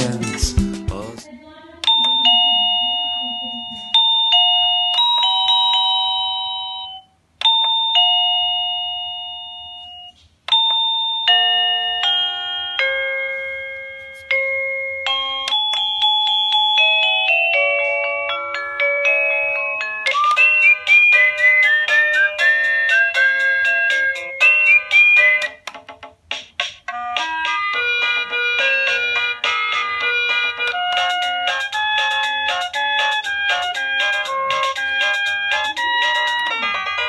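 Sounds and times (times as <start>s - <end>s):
doorbell melody: 1.8s - 25.6s, 26.9s - 37.0s
two-note doorbell chime: 1.9s - 25.6s.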